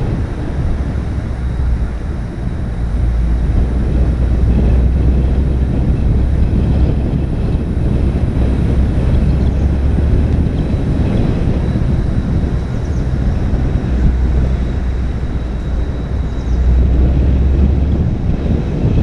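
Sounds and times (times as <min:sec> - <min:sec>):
vehicle engine and road rumble: 0:00.0 - 0:19.0
wind noise: 0:00.0 - 0:19.0.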